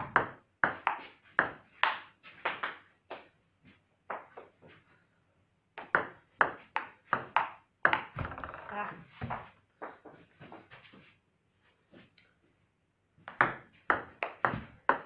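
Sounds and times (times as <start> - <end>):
table tennis ball hits: 0.0 - 3.3, 5.8 - 10.1, 13.2 - 15.0.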